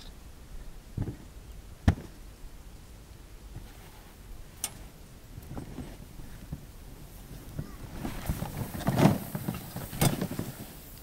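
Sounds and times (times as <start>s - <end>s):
pole planted in snow: 3.5s - 11.0s.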